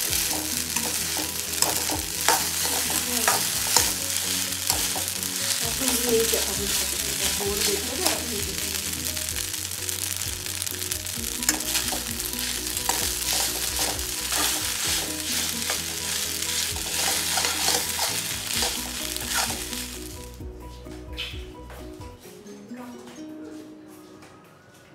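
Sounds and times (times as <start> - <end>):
metal spoon scraping a pan: 0.0 - 8.3, 11.3 - 20.0
pasta sizzling in a pan: 0.0 - 20.4
background music: 0.0 - 24.9.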